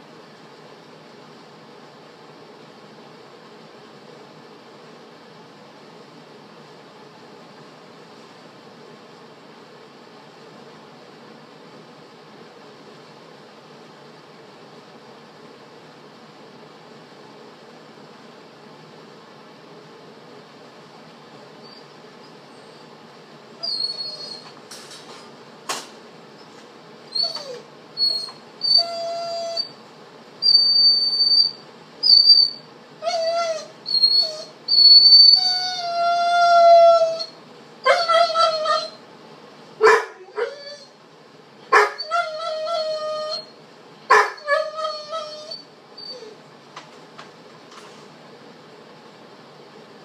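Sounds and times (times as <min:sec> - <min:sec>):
dog whining and howling: 0:23.6 - 0:24.6, 0:27.1 - 0:29.8, 0:30.4 - 0:39.0, 0:39.8 - 0:41.0, 0:41.7 - 0:46.4.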